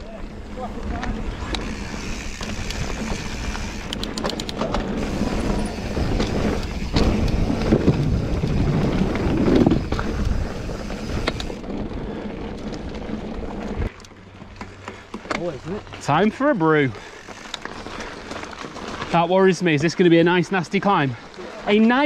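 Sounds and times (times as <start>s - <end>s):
bike tyres rumbling on stones: 0.0s - 22.0s
bike clicks and knocks: 0.9s - 16.0s
wind on microphone: 1.3s - 12.2s.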